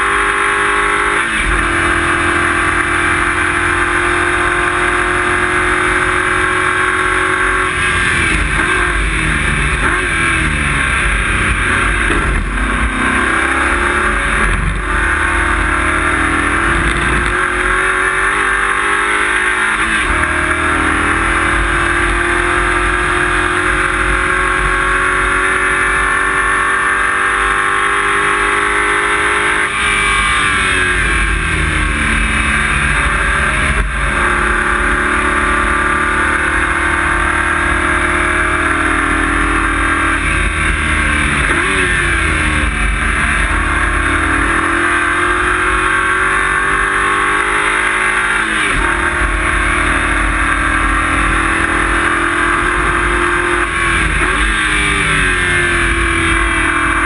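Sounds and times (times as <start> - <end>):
race car engine revving: 0.0 - 57.0
road and cabin noise: 0.0 - 57.0.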